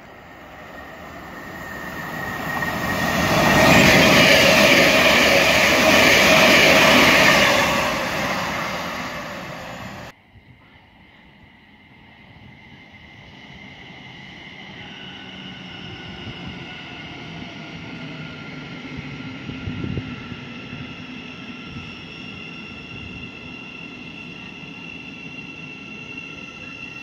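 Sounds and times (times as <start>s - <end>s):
wheel and rail rumble: 0.0s - 10.1s.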